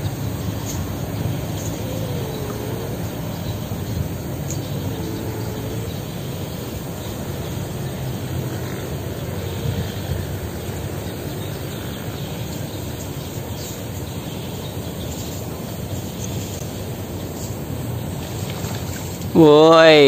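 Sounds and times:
low outdoor rumble: 0.0 - 20.0.

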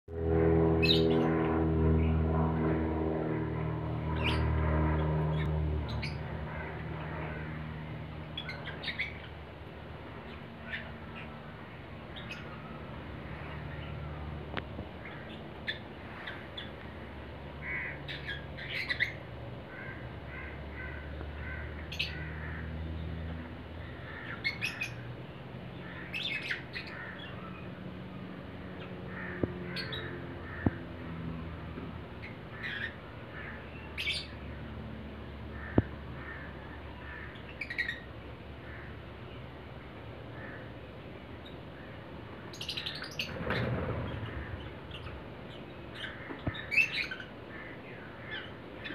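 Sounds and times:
lovebirds squawking and chirping: 8.2 - 9.4, 10.2 - 14.0, 15.0 - 22.6, 23.8 - 25.1, 32.2 - 34.4, 35.6 - 39.0, 41.4 - 48.9.

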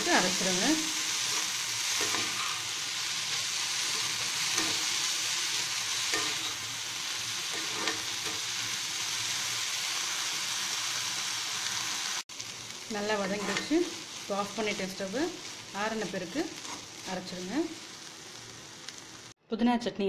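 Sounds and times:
food sizzling in oil: 0.0 - 19.4
spatula scraping a pan: 1.1 - 5.0, 5.6 - 6.7, 7.4 - 8.5, 13.3 - 13.8.

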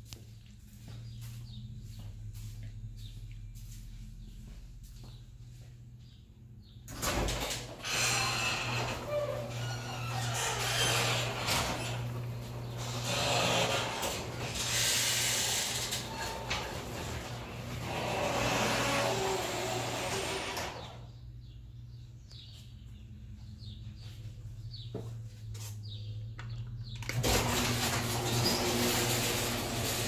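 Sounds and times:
birds chirping: 0.2 - 27.2
garage door opener running: 6.9 - 21.3, 26.8 - 30.0.

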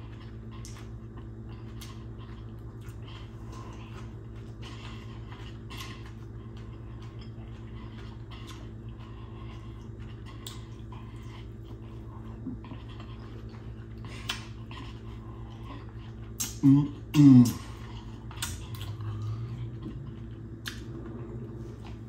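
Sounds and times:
person chewing: 0.0 - 22.0
steady low hum: 0.0 - 22.0
wet mouth clicks and smacks: 16.4 - 16.6, 18.3 - 19.0, 20.6 - 20.9.

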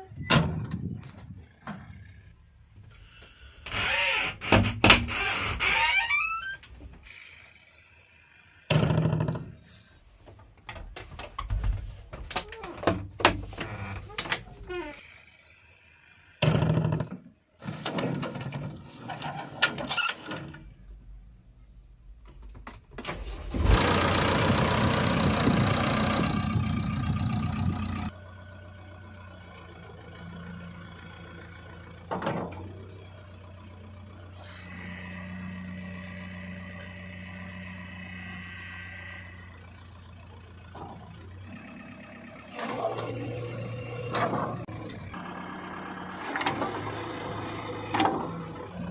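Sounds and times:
diesel engine starting and idling: 23.0 - 48.9
clunks: 31.6 - 33.4, 39.3 - 41.6, 42.4 - 45.2, 46.0 - 48.9.

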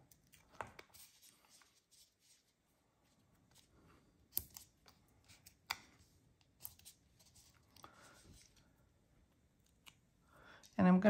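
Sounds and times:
handling of cardstock pieces: 0.0 - 8.7.

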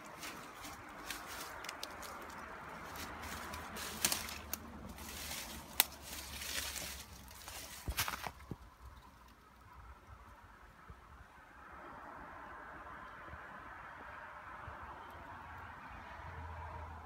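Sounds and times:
footsteps on dry leaves: 0.0 - 8.6
twigs cracking: 0.0 - 9.4.

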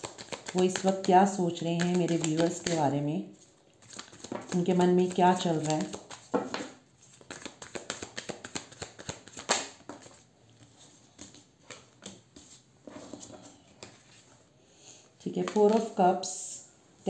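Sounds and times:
cards shuffling and snapping: 0.0 - 1.1, 1.7 - 2.8, 3.8 - 10.2, 11.2 - 12.2.

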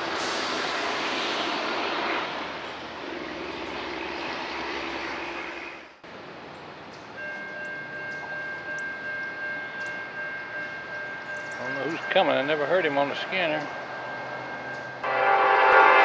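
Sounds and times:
engine drone with rushing: 0.0 - 6.4.

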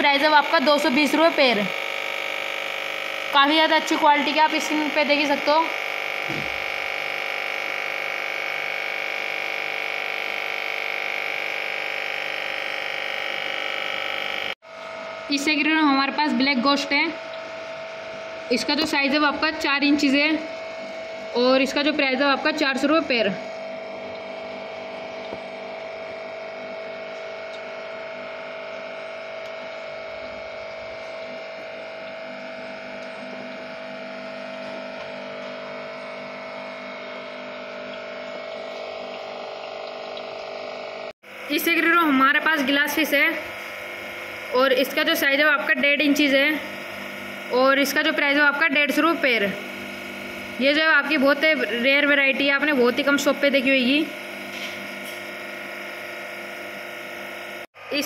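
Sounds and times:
aquarium air pump buzzing hum: 0.0 - 58.0.

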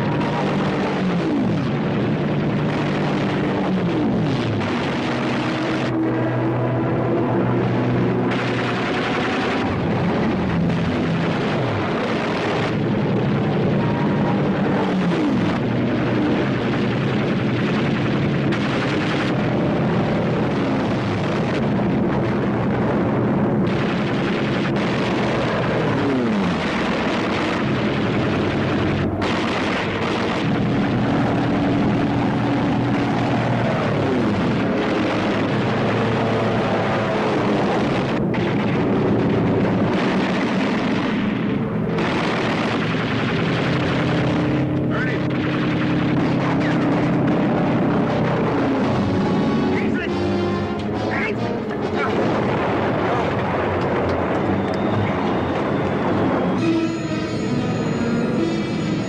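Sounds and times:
fighter plane passing: 0.0 - 59.0
propeller aircraft engines droning: 0.0 - 59.0
machine-gun fire: 8.2 - 21.7, 23.6 - 47.5.

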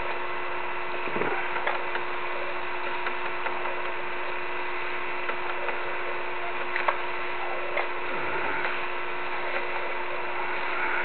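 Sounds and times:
low hum: 0.0 - 11.0
steady hiss: 0.0 - 11.0
mechanism ticking and clicking: 1.0 - 2.2, 2.8 - 4.4.

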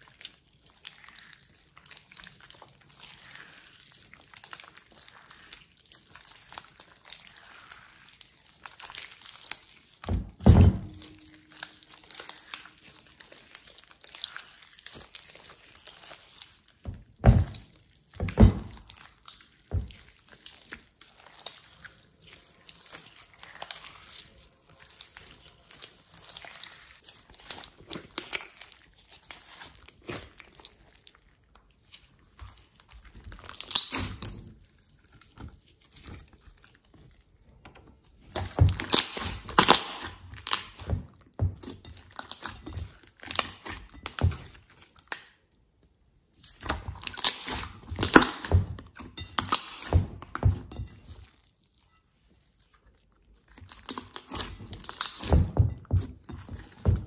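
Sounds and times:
slime squelching: 0.0 - 57.0.

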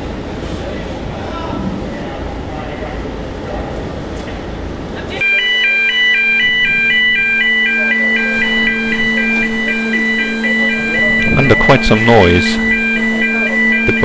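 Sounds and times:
steady low hum: 0.0 - 14.0
two-tone electronic alarm: 5.2 - 14.0.

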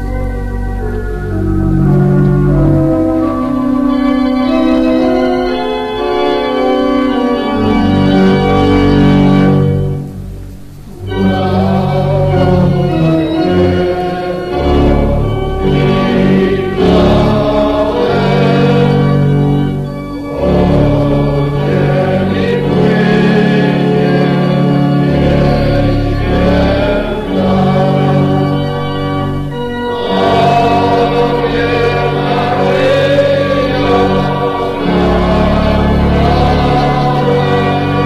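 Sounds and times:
organ accompaniment: 0.0 - 38.0
group singing a hymn: 11.0 - 38.0.

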